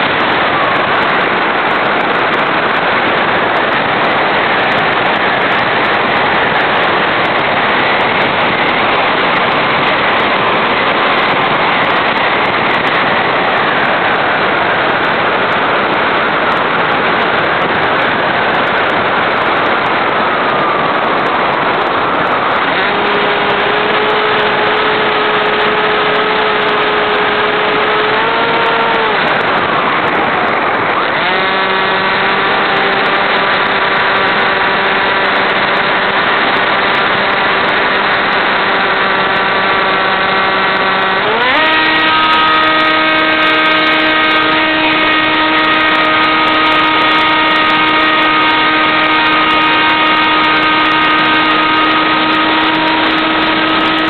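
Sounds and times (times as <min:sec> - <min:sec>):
rush of air: 0:00.0 - 0:41.6
model airplane motor buzzing: 0:22.4 - 0:30.2, 0:30.9 - 0:54.0.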